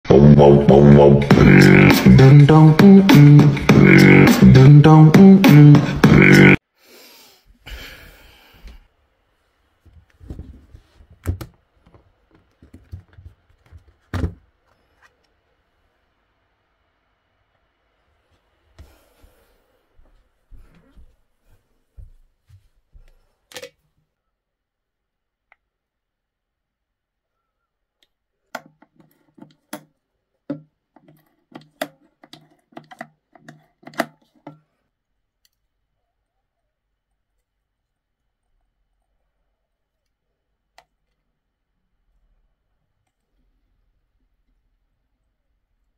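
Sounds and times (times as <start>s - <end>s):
pump bottle clicking and squirting: 30.5s - 34.6s.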